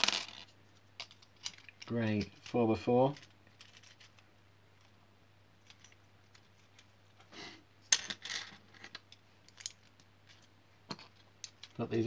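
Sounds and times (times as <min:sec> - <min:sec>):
plastic bricks clicking and rattling: 0:00.0 - 0:02.4, 0:03.1 - 0:04.2, 0:05.6 - 0:06.9, 0:07.9 - 0:11.8.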